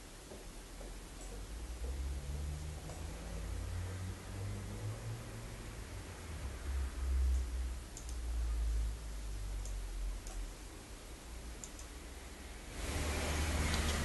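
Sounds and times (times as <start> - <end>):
computer mouse clicks: 7.3 - 8.2, 9.6 - 10.5, 11.6 - 12.0.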